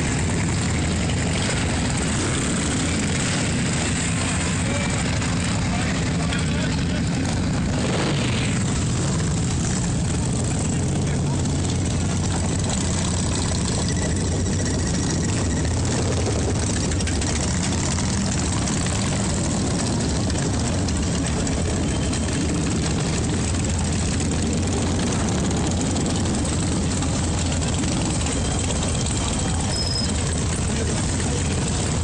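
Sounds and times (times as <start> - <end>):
motorcycle engines low drone: 0.0 - 32.0.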